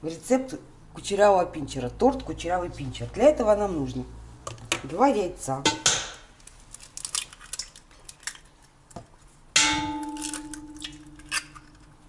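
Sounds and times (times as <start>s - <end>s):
metal bowl ringing: 9.6s - 11.3s.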